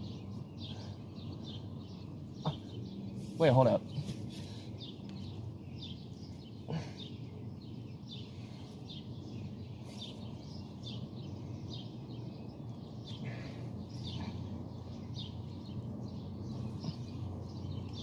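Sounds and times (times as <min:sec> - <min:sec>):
birds chirping: 0:00.0 - 0:18.0
low outdoor rumble: 0:00.0 - 0:18.0.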